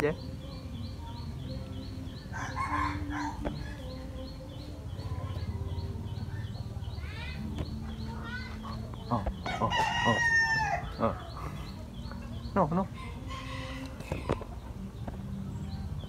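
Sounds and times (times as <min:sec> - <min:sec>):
rooster crowing: 0:02.4 - 0:03.4, 0:09.5 - 0:11.0
chicken calls: 0:08.2 - 0:11.8.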